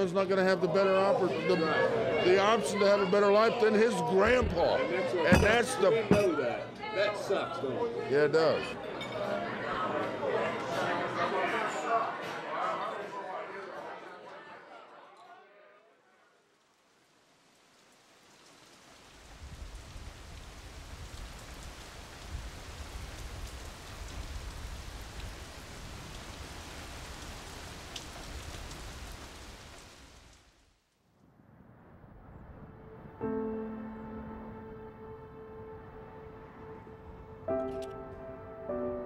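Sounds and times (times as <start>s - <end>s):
rain falling on pavement: 16.4s - 31.0s
soft background music chords: 32.9s - 39.0s.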